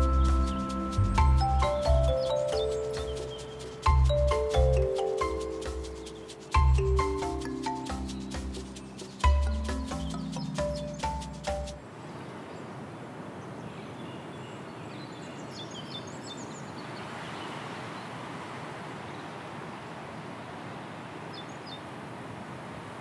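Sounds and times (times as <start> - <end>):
background music: 0.0 - 11.8
soft hiss of open air: 0.0 - 23.0.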